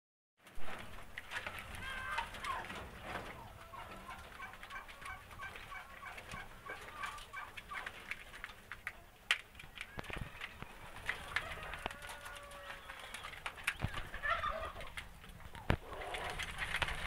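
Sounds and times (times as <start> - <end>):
quails chirping: 2.6 - 8.2, 10.0 - 17.0.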